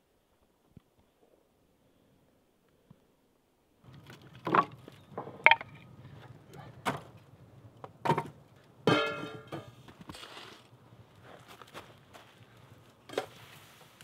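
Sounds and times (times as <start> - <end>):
firewood clacking on metal stove: 8.0 - 9.7
metal pot clanking and ringing: 8.9 - 9.4.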